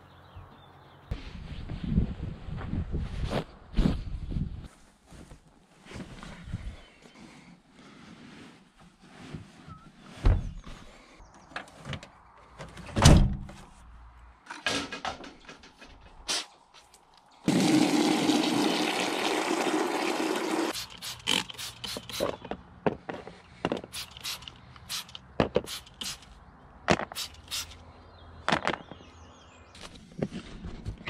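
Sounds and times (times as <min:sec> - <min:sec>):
hose water running into container: 0:17.4 - 0:22.2
spray bottle squirts: 0:20.7 - 0:22.4, 0:23.9 - 0:26.3, 0:27.1 - 0:27.8.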